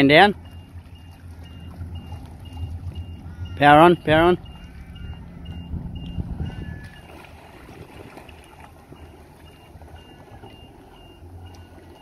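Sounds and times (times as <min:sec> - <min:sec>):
motorboat engine running: 0:00.0 - 0:12.0
short high beeps: 0:00.4 - 0:07.2.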